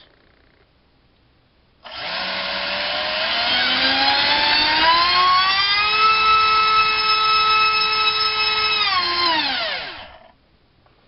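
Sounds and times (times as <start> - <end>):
electric motor whine: 1.8 - 10.4.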